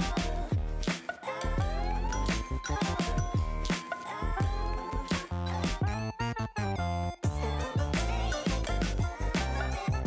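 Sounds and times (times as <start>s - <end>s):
deep bass thumps: 0.0s - 0.9s
steady drum beat: 0.0s - 1.0s, 7.3s - 10.0s
upbeat music: 0.0s - 10.0s.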